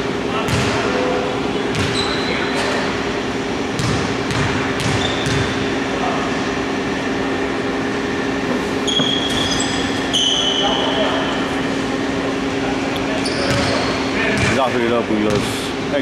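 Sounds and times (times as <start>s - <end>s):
steady hall hum: 0.0s - 16.0s
sneakers squeaking: 0.4s - 5.9s, 8.7s - 15.6s
basketball bouncing on hardwood: 3.8s - 5.5s.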